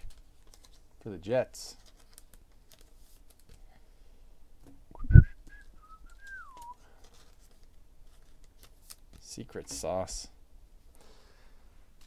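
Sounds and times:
person whistling: 4.9s - 6.8s.

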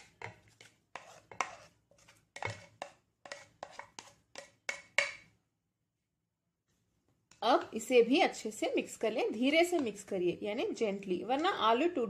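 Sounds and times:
plastic spoon scraping a plate: 0.0s - 5.2s.

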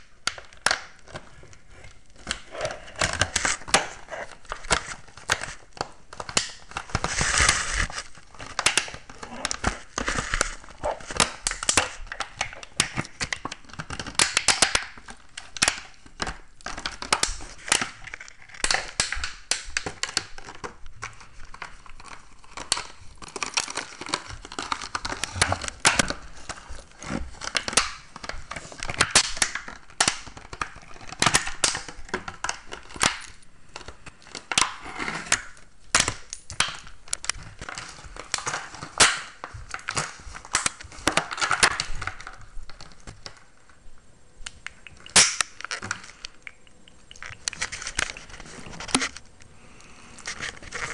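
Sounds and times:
plastic bottle crinkling: 0.0s - 43.8s, 44.4s - 50.9s.

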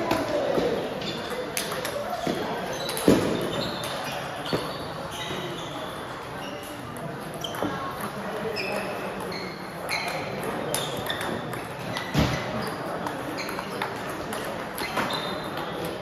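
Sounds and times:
table tennis balls clicking: 0.0s - 4.7s, 6.6s - 16.0s.

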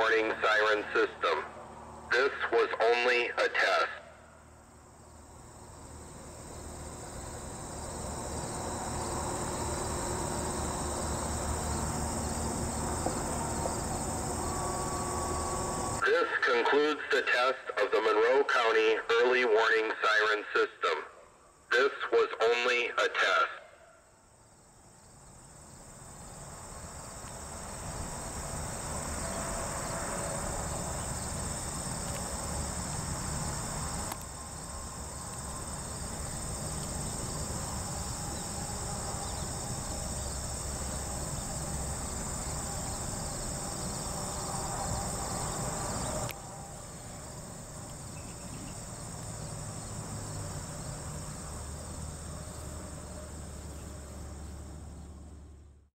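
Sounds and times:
insects chirring: 0.0s - 55.7s.

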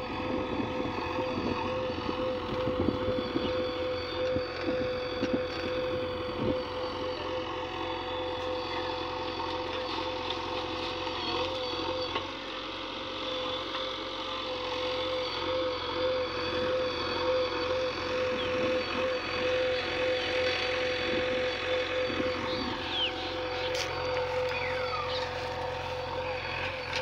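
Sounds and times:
diesel engines running: 0.0s - 27.0s.

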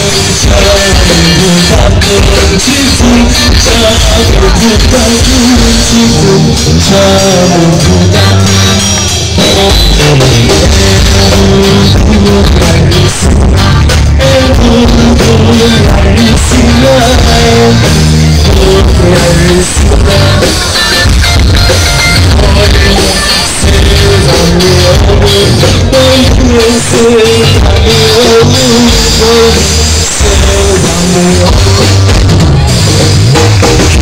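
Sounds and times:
person singing lead vocal: 0.0s - 21.2s, 22.0s - 34.0s
drum kit: 0.0s - 34.0s
electric guitar: 0.0s - 34.0s
live band playing: 0.0s - 34.0s.

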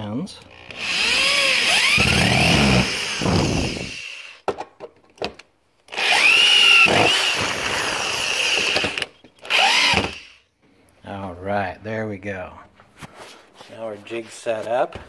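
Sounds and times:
electric drill driving screws: 0.5s - 4.4s, 5.9s - 10.4s.

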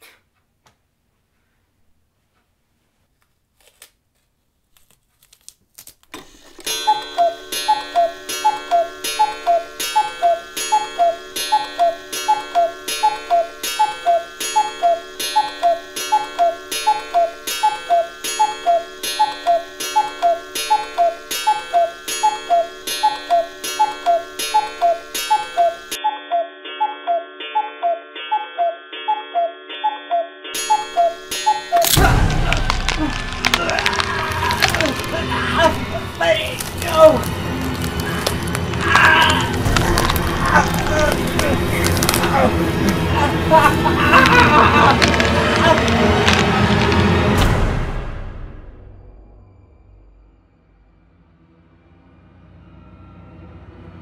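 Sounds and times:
loud clock ticking: 6.7s - 26.4s, 30.6s - 32.8s.

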